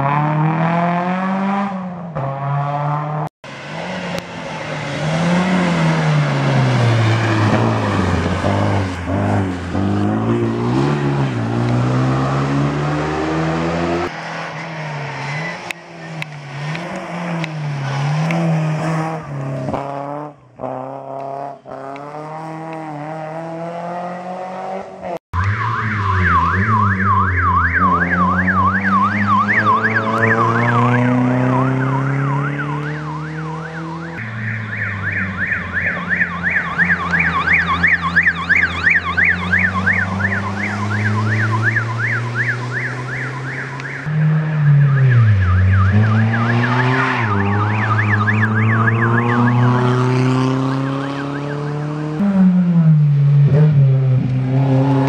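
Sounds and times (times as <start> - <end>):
rally car engine revving: 0.0 - 55.0
warbling siren: 25.4 - 52.5.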